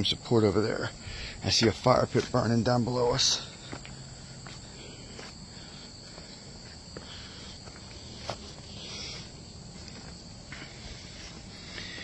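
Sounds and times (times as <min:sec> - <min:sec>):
insect chorus drone: 0:00.0 - 0:12.0
footsteps on trestle: 0:01.5 - 0:02.5, 0:03.4 - 0:05.4, 0:06.0 - 0:12.0.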